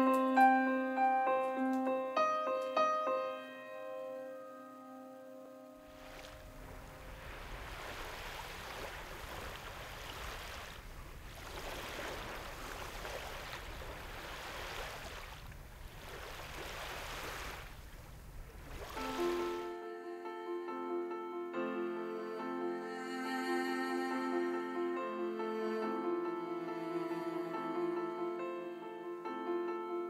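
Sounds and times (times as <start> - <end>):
waves breaking on sandy beach: 5.9 - 19.8
low rumble of wind: 6.3 - 19.0.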